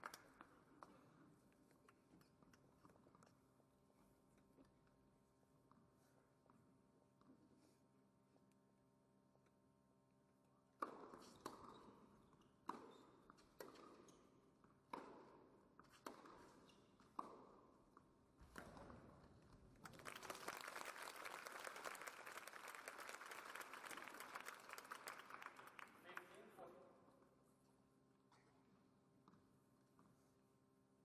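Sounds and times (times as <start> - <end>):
crowd applause: 19.8 - 26.4.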